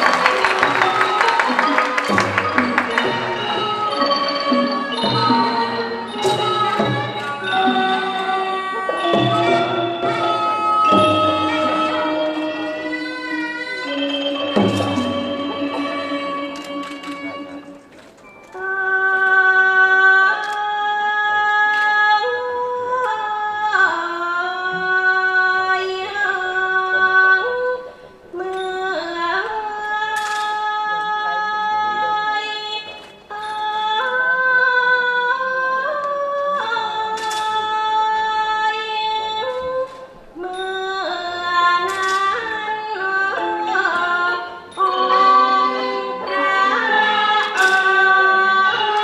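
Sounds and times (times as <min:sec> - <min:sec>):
woman singing long high notes: 0:00.0 - 0:17.8, 0:18.5 - 0:49.0.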